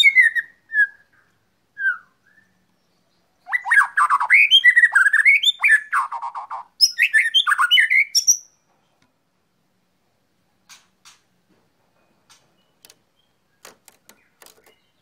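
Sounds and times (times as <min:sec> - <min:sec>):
bird singing whistled song: 0:00.0 - 0:08.6.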